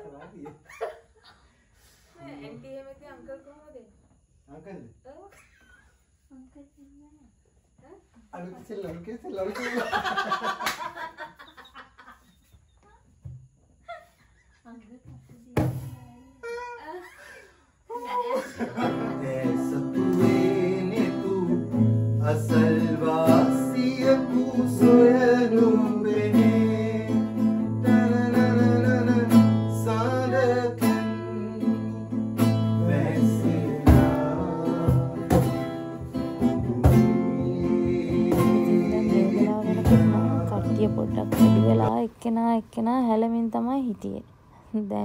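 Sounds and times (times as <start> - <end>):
people singing along: 18.5 - 41.9
acoustic guitar strumming: 18.6 - 42.4.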